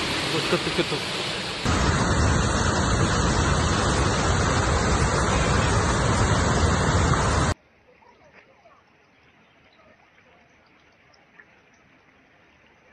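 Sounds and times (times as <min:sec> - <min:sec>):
floodwater rushing: 0:00.0 - 0:07.6.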